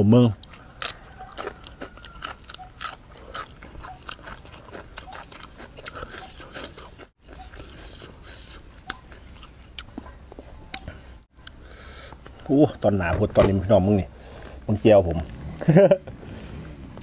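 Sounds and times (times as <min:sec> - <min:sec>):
person chewing crunchy vegetable: 0:00.4 - 0:12.2.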